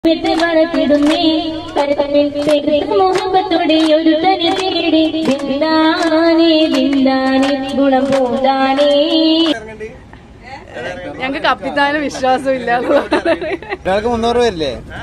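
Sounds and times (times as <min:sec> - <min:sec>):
woman singing into a microphone: 0:00.1 - 0:09.5.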